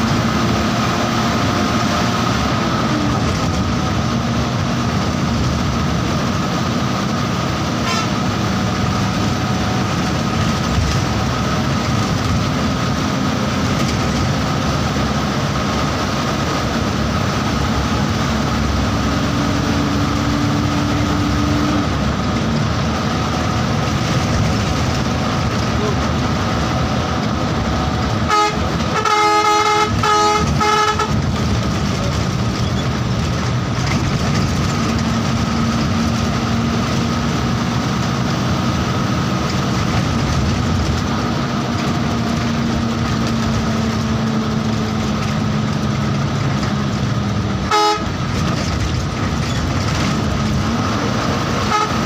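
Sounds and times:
bus engine and road drone: 0.0s - 52.0s
multi-tone horn blasts: 7.8s - 8.3s, 28.2s - 31.4s, 47.6s - 48.3s, 51.5s - 52.0s.

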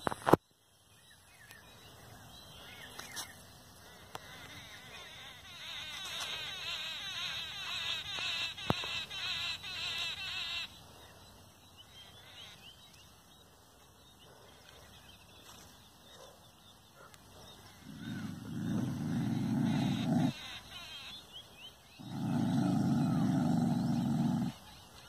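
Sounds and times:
dog growling: 17.7s - 20.4s, 22.0s - 24.7s.

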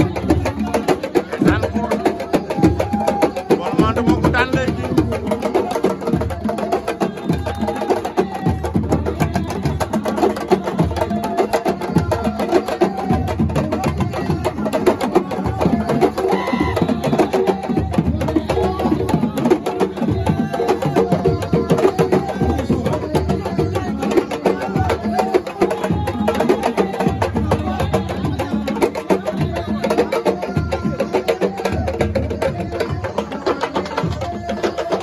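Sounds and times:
hand drums playing fast rhythm: 0.0s - 35.0s.

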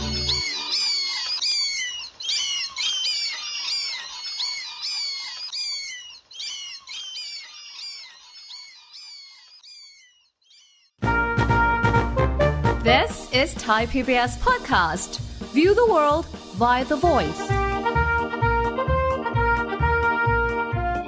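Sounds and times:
song music: 0.0s - 0.7s, 11.0s - 21.0s
high bird-like chirping: 0.0s - 11.0s.

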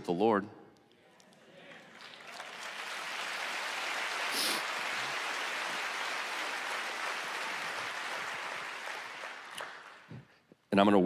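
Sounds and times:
crowd applauding: 1.3s - 10.3s.

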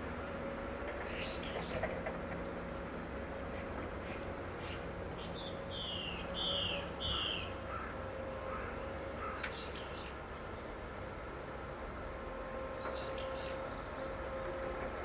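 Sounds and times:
birds chirping: 4.1s - 11.1s.

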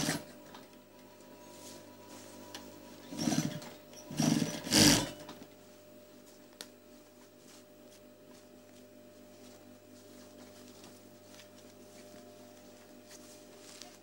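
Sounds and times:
sewing machine stitching: 0.0s - 0.4s, 3.0s - 5.4s
steady low hum: 0.0s - 14.0s.

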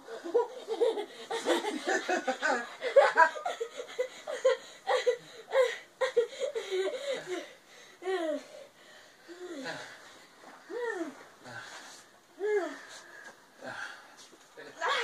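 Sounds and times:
boy giggling: 0.0s - 8.5s.

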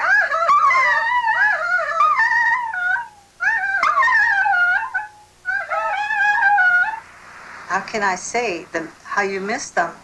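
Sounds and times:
small dog howling: 0.0s - 7.0s
woman howling: 0.0s - 7.0s.

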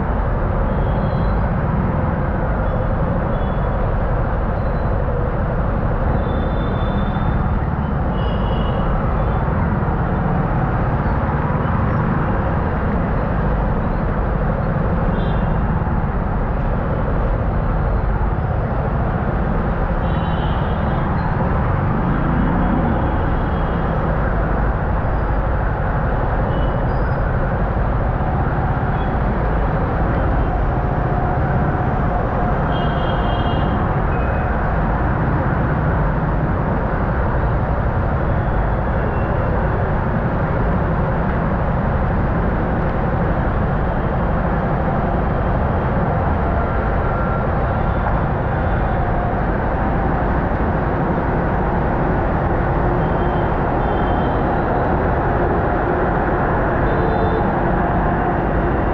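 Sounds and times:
faint car horn beeps: 53.1s - 54.4s.

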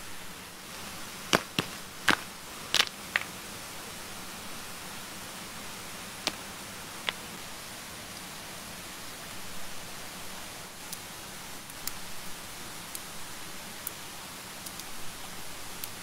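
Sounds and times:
rushing stream water: 0.0s - 11.6s
rocks clacking on stones: 0.7s - 3.4s, 6.2s - 7.4s.

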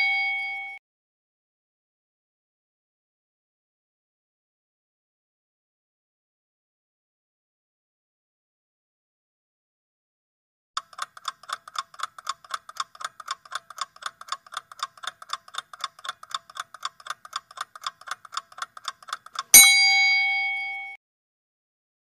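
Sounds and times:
loud bell ding: 0.0s - 0.8s, 19.6s - 21.0s
fast clock ticking: 10.8s - 19.6s.

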